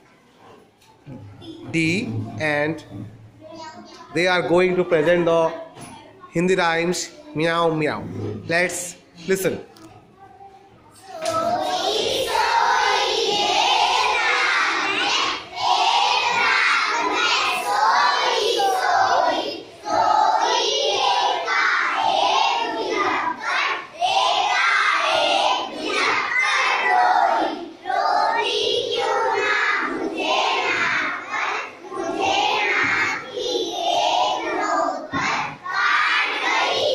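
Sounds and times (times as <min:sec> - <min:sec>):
children singing in unison: 0:11.0 - 0:36.9.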